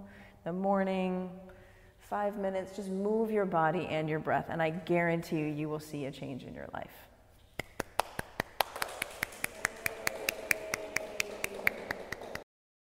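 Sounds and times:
small group applauding: 0:07.6 - 0:12.5.

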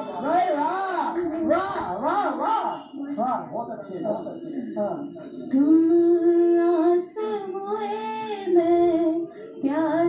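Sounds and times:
woman singing through tv speaker: 0:05.2 - 0:10.0.

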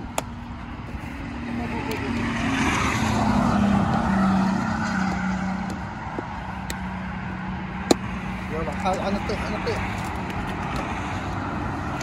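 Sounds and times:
vehicle driving past: 0:01.2 - 0:09.8.

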